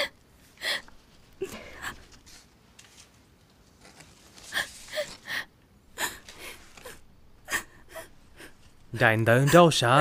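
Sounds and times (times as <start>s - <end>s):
person sobbing and sniffing: 0.0s - 2.4s.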